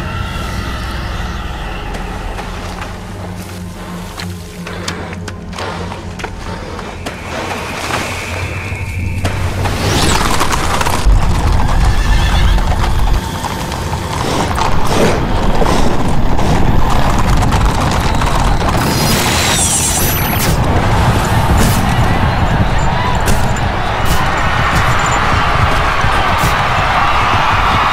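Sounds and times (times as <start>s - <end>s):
hoofbeats: 0.0s - 27.9s
horse whinnying: 11.3s - 14.4s.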